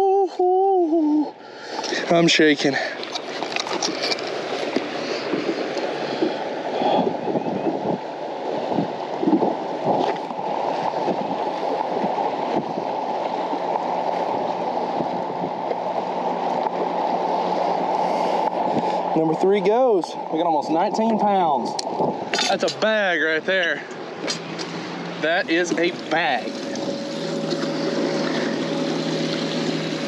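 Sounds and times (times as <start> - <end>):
faint steady hum: 0.0 - 30.0
water gurgling around a boat: 1.7 - 19.2, 23.8 - 30.0
handling knocks and rustles: 3.0 - 5.8.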